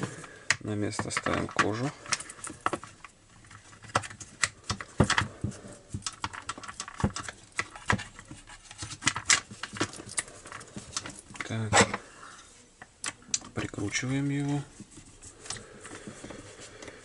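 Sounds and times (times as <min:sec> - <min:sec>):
plastic cover clicks and knocks: 0:00.5 - 0:02.9, 0:03.8 - 0:08.3.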